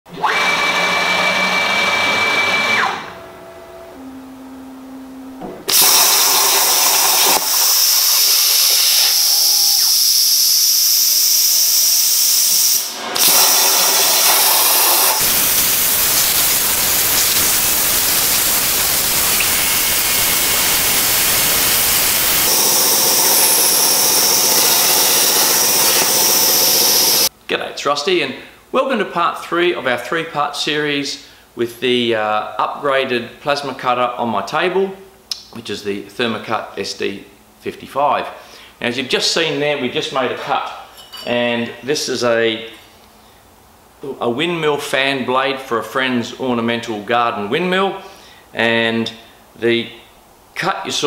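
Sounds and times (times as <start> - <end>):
faint steady tones: 3.2 - 5.4
plasma arc hissing: 5.7 - 27.3.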